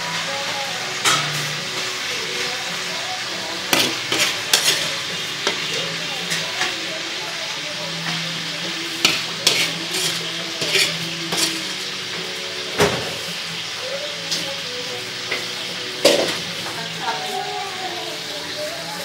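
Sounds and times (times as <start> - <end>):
food sizzling in a pan: 0.0 - 19.0
metal utensil scraping a pan: 3.5 - 6.9, 8.9 - 13.3.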